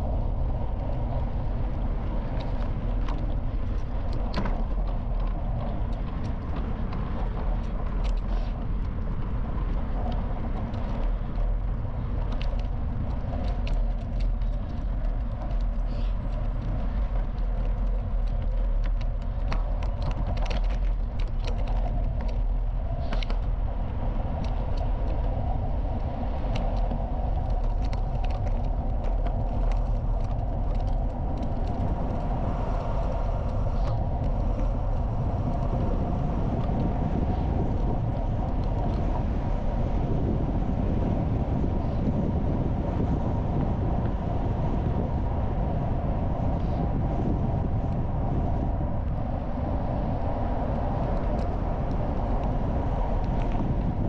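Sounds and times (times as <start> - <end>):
bicycle tyres rolling over gravel: 0.0 - 54.0
sharp clicks and ticks: 2.4 - 23.6, 24.3 - 35.8.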